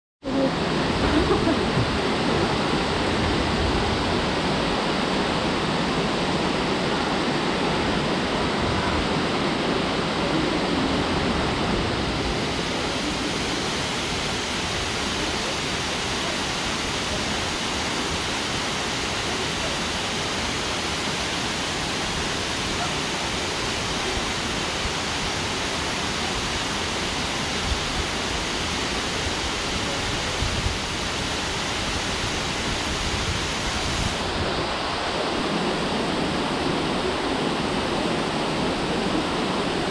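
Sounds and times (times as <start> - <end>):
waterfall pouring into a pool: 12.5 - 34.2.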